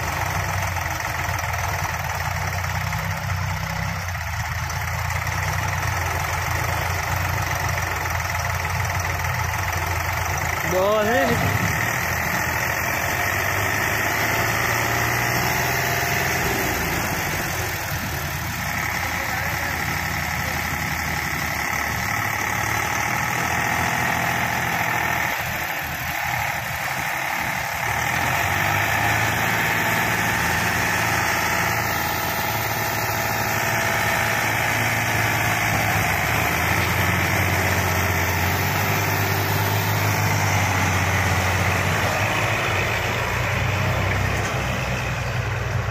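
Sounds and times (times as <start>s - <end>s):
diesel tractor engines running: 0.0s - 45.9s.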